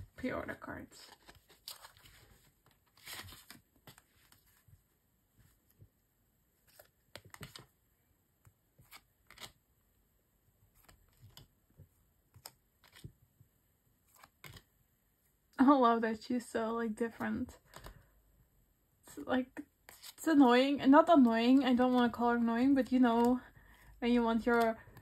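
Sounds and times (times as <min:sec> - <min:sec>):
cards clicking and rustling: 0:01.1 - 0:04.6, 0:06.6 - 0:07.7, 0:08.8 - 0:09.6, 0:10.7 - 0:11.5, 0:12.3 - 0:13.2, 0:14.1 - 0:14.7, 0:17.6 - 0:18.1, 0:19.8 - 0:20.2, 0:21.1 - 0:25.0.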